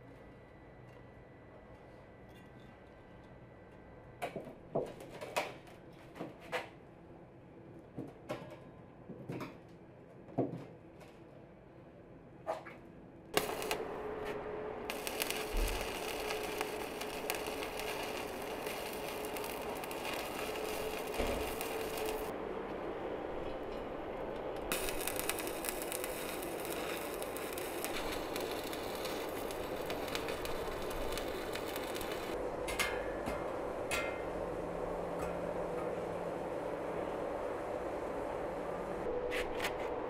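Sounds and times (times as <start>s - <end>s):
faint steady hum: 13.0s - 40.0s
electric arc welding crackle: 13.4s - 22.3s, 24.7s - 32.4s.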